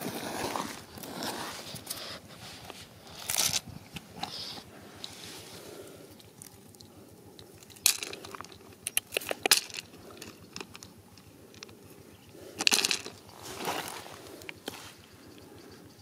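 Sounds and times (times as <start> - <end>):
stones clicking together: 6.2 - 11.8, 12.6 - 13.3
hand rustling through gravel: 12.6 - 15.0.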